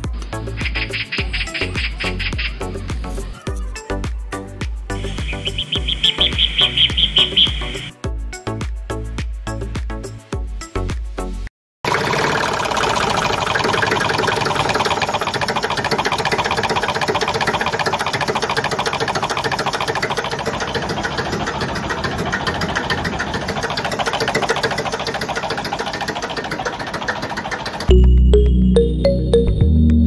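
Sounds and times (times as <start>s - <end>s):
tractor diesel engine running: 0.0s - 3.4s, 4.9s - 7.9s, 11.8s - 29.4s.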